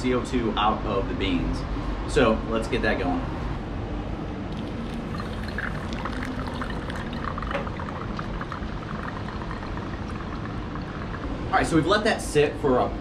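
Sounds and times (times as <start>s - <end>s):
water pouring onto coffee grounds: 4.6s - 11.8s.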